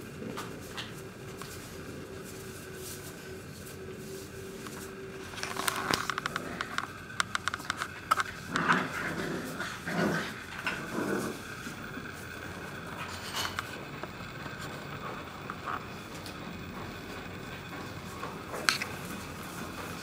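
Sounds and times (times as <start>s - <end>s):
puppies scuffling: 0.0s - 20.0s
puppy growls and yelps: 8.2s - 11.8s.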